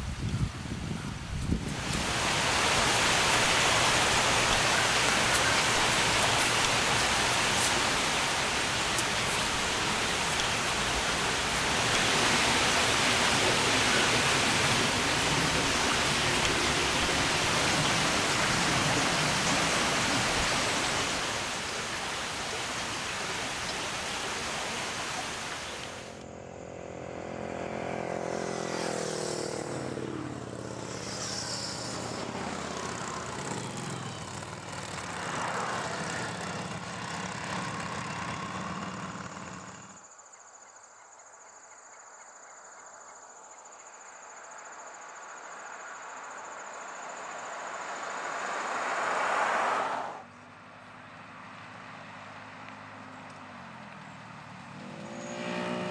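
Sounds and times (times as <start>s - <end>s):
loud rushing hiss: 1.8s - 26.2s
motorcycle passing: 26.0s - 40.0s, 47.7s - 55.9s
insect trill: 28.8s - 34.4s, 39.6s - 49.4s.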